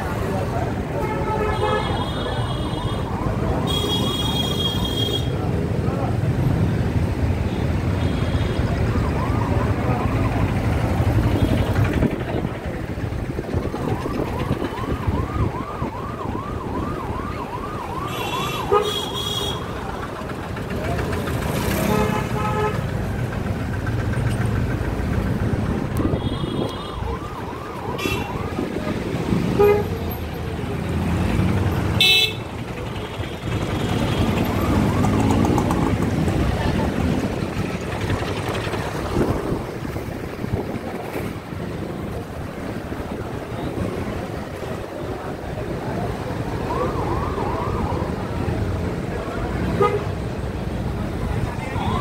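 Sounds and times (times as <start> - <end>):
motorcycle and car engines: 0.0 - 1.0, 5.4 - 52.0
traffic rumble: 0.0 - 52.0
vehicle horn toot: 32.0 - 32.4.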